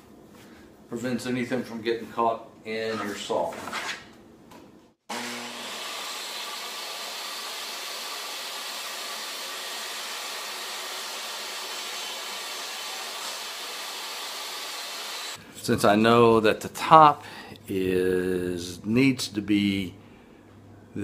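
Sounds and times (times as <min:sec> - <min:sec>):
table saw whining: 0:05.1 - 0:15.4.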